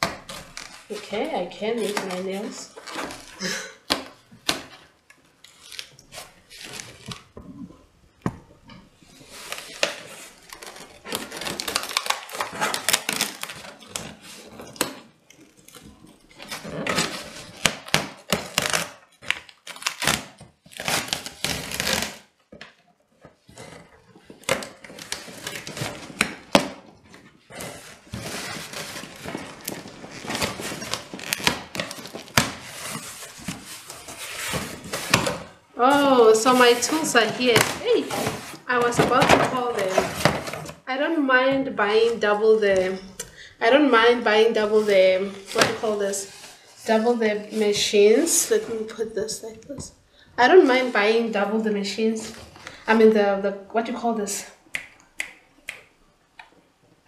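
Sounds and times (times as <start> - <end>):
packing tape scratching and ripping: 0.0 - 3.5, 5.4 - 7.4, 9.2 - 22.4, 23.3 - 38.7.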